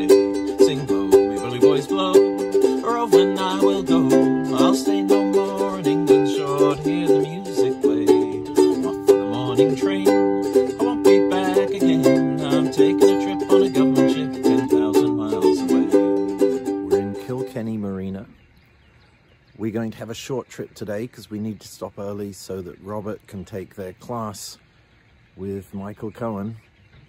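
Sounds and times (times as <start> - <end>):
moving bass line: 0.0 - 17.4
plucked string instrument folk tune: 0.0 - 18.1.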